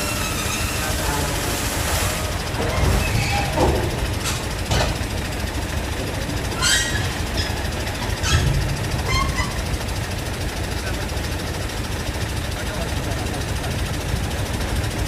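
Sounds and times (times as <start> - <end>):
metallic squeals and clanks: 0.0 - 5.0, 6.4 - 10.2
truck diesel engine rumbling: 0.0 - 15.0.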